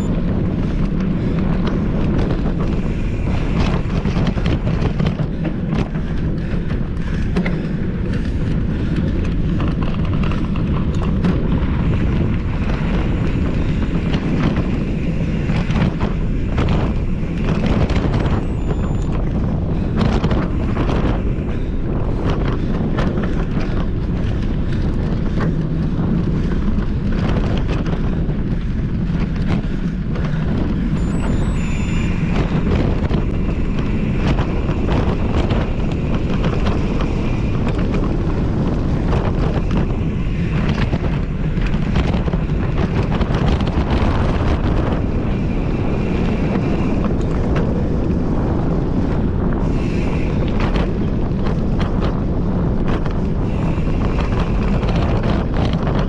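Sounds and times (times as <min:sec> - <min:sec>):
bike knocks and rattles: 0:00.0 - 0:31.4
wind rushing over microphone: 0:00.0 - 0:56.0
faint high whine: 0:18.3 - 0:19.3, 0:30.8 - 0:34.9.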